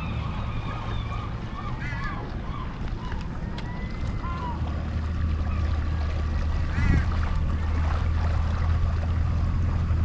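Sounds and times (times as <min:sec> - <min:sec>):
outboard motor humming: 0:00.0 - 0:10.0.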